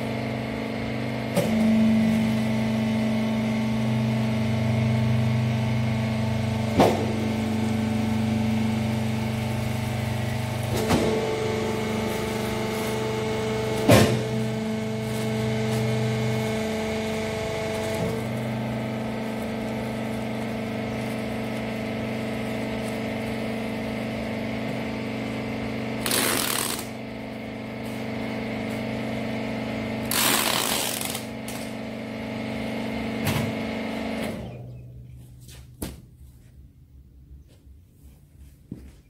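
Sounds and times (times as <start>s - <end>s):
hydraulic power unit humming: 0.0s - 39.0s
packing tape ripping off dispenser: 26.0s - 27.0s, 30.1s - 31.7s.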